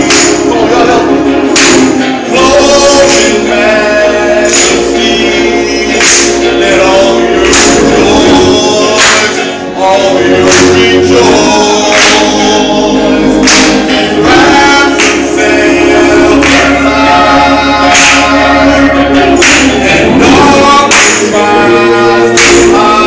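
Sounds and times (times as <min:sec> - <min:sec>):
hand claps: 0:00.0 - 0:00.7, 0:01.5 - 0:02.3, 0:03.0 - 0:03.5, 0:04.4 - 0:05.0, 0:05.9 - 0:06.6, 0:07.4 - 0:09.5, 0:10.4 - 0:12.5, 0:13.4 - 0:15.4, 0:16.4 - 0:16.8, 0:17.9 - 0:18.4, 0:19.4 - 0:20.0, 0:20.7 - 0:21.4, 0:22.4 - 0:22.8
gospel choir singing: 0:00.0 - 0:23.0.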